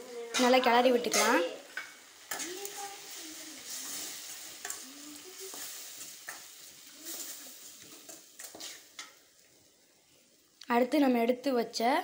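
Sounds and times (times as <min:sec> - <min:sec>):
frying sizzle: 0:00.0 - 0:12.0
spoon scraping a pan: 0:00.3 - 0:09.3.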